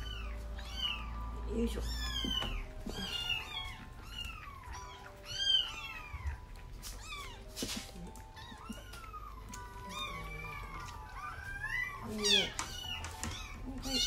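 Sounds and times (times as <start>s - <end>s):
kittens mewing: 0.0s - 14.0s
handling rustle: 6.8s - 9.0s.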